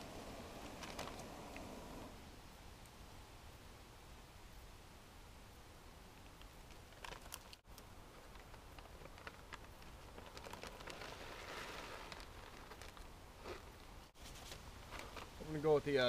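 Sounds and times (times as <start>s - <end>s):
plastic pouch crinkling: 6.7s - 13.8s.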